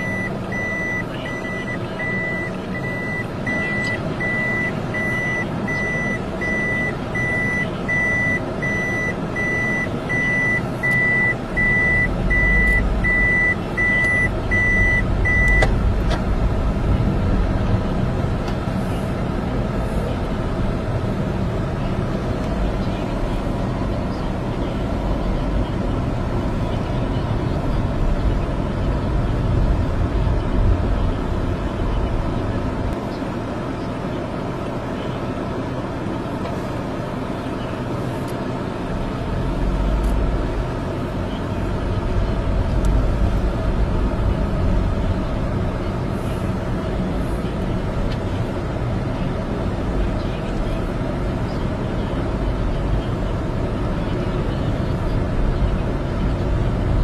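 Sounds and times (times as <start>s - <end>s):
high electronic beeping: 0.0s - 15.7s
vehicle engine idling: 0.0s - 57.0s.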